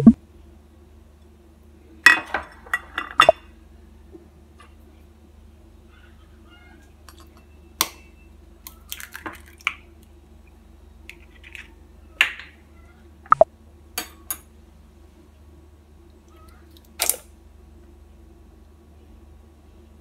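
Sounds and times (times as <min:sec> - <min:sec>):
steady low hum: 0:00.0 - 0:02.1.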